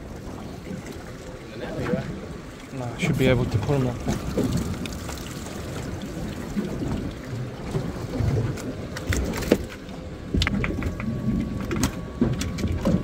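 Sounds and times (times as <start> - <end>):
wind rumbling on microphone: 0.0 - 13.0
sharp clicks and knocks: 9.0 - 13.0.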